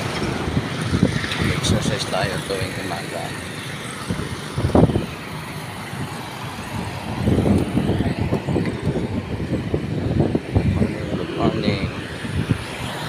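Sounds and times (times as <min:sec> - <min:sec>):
road traffic passing: 0:00.0 - 0:13.0
microphone handling rumble: 0:06.9 - 0:12.7.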